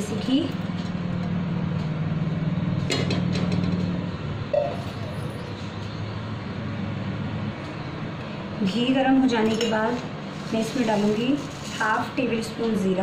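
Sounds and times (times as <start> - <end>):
low machine hum: 0.0 - 10.4.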